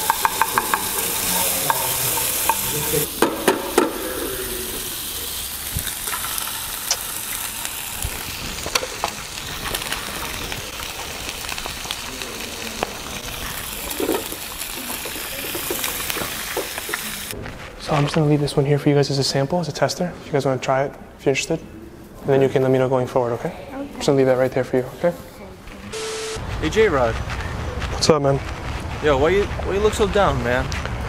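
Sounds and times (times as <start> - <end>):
eggs sizzling in a pan: 0.0 - 17.4.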